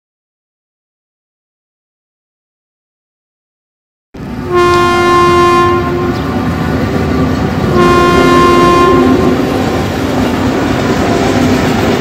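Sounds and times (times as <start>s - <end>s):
train rumble: 4.2s - 12.0s
locomotive horn blasts: 4.5s - 6.5s, 7.7s - 9.7s.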